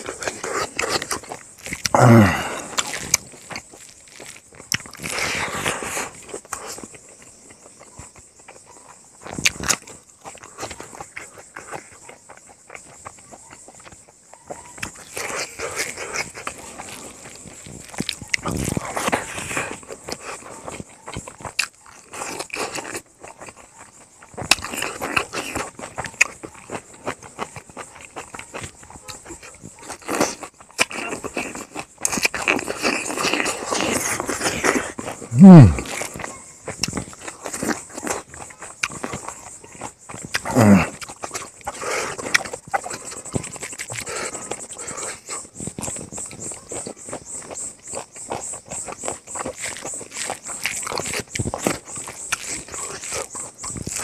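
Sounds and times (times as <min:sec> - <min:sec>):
high insect call pulsing: 0:00.0 - 0:54.0
man chewing food: 0:00.0 - 0:54.0
low grunt: 0:01.8 - 0:02.9, 0:35.2 - 0:36.1, 0:40.4 - 0:41.0
mouth clicks: 0:09.2 - 0:54.0.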